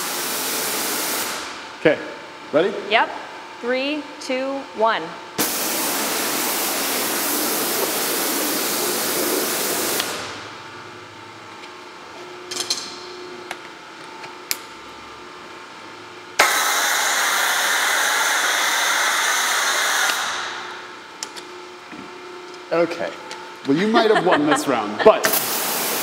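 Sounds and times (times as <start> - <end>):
foam cannon hissing: 0.0 - 1.5, 5.4 - 10.4, 16.4 - 20.7, 25.2 - 26.0
pressure washer spraying water: 0.0 - 1.5, 5.4 - 10.4, 16.4 - 20.7, 25.3 - 26.0.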